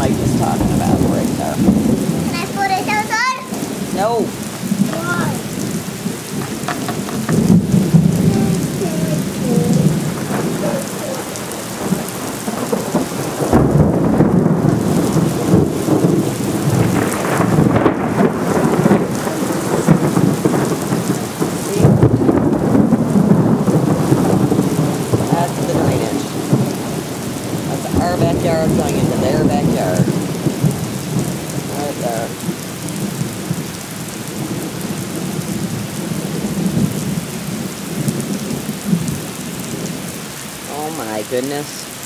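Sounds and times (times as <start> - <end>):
low rumble: 0.0 - 2.3
heavy rain on pavement: 0.0 - 42.0.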